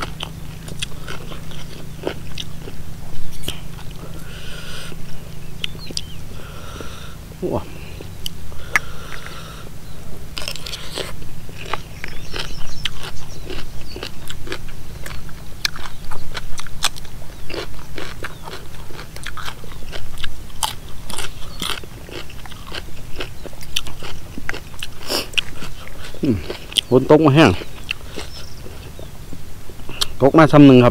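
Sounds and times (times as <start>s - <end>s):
person chewing crunchy food: 0.0s - 30.2s.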